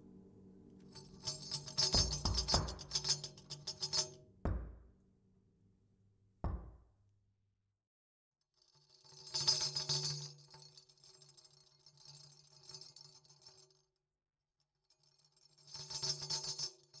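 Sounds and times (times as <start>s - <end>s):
metal jingles rattling: 1.0s - 4.2s.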